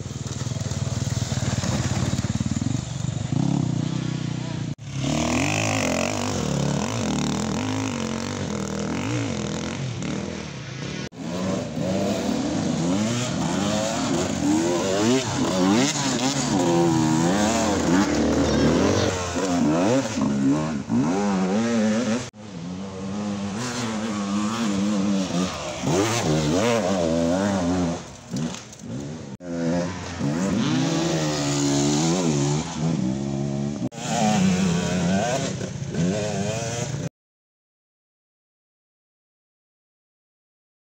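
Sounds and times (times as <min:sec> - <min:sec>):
racing motorcycle engines revving: 0:00.0 - 0:37.1.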